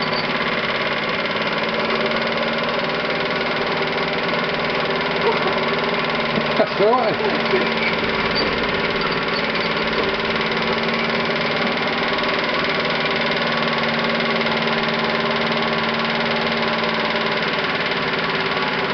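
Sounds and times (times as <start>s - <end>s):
gearbox squeaking: 0.0s - 0.4s, 7.5s - 10.2s
model steam pump clattering: 0.0s - 18.9s.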